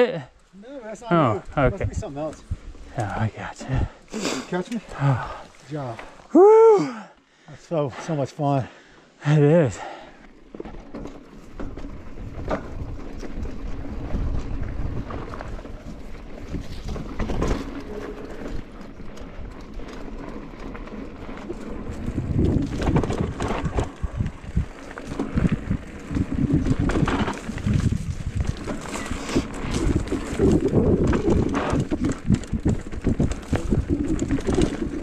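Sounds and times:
wind buffeting microphone: 0:01.3 - 0:04.0, 0:21.2 - 0:35.0
bike tyres rumbling on dirt: 0:09.7 - 0:35.0
bike knocks and rattles: 0:10.5 - 0:35.0.

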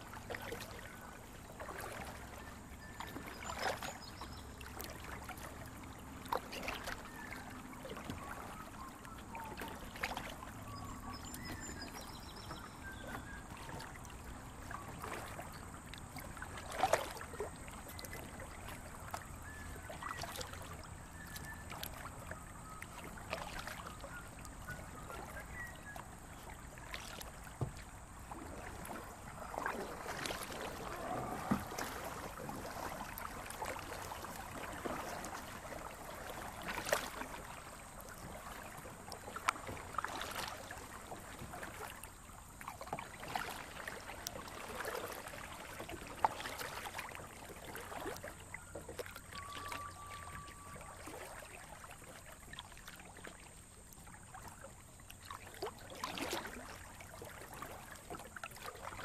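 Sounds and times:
paddle strokes splashing: 0:00.0 - 0:59.0
creek water rushing: 0:28.2 - 0:38.4.

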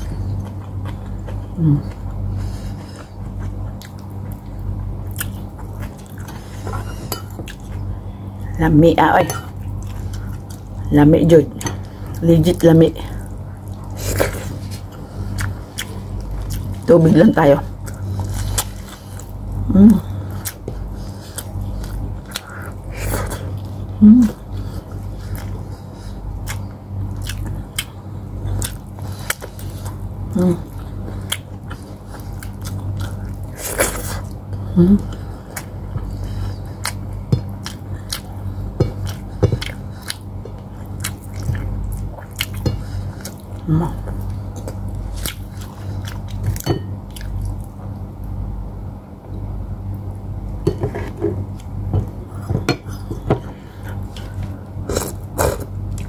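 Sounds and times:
short hummed sound: 0:00.0 - 0:08.6, 0:13.0 - 0:56.0
steady low hum: 0:00.0 - 0:56.0
chewing and wet mouth smacking: 0:35.6 - 0:47.8.

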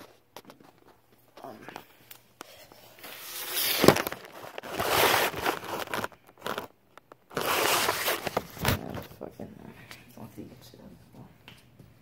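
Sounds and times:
rustling and scraping handling: 0:00.0 - 0:09.3.

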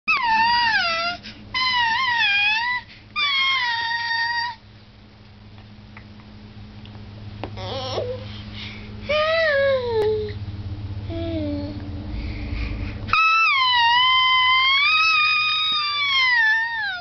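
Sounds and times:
baby babbling: 0:07.6 - 0:08.2
baby squealing: 0:13.1 - 0:17.0.

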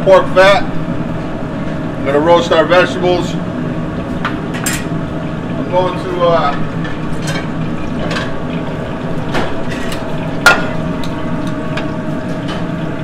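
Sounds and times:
kitchen hum: 0:00.0 - 0:13.0.

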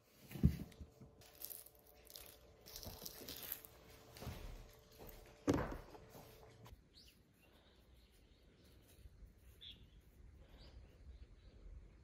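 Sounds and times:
citrus peel ripping and crackling: 0:01.2 - 0:03.8.

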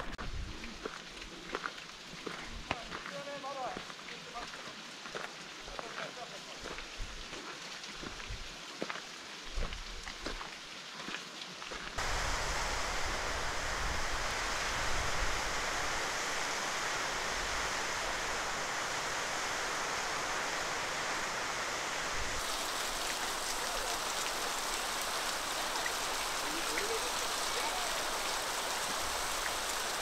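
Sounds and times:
waterfall rushing: 0:12.0 - 0:30.0.

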